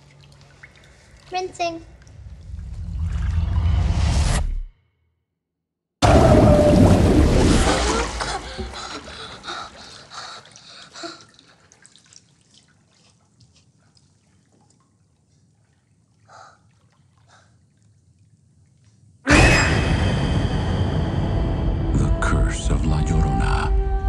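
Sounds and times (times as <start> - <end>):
water dripping in bathtub: 0.0 - 2.7, 8.2 - 19.2
loud blast: 19.3 - 23.2.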